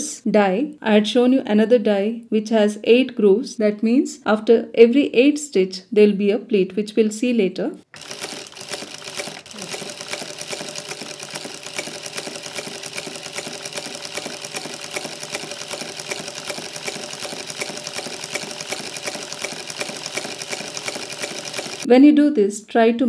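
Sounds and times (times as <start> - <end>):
sewing machine stitching: 7.9 - 21.9.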